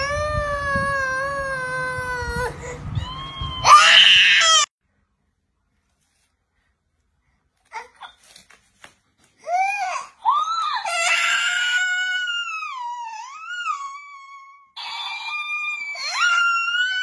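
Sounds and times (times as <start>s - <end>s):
baby crying: 9.4s - 17.0s.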